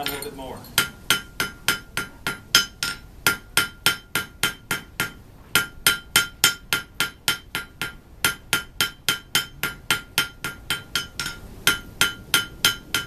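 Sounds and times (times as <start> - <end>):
hammer striking steel on anvil: 0.0 - 13.0.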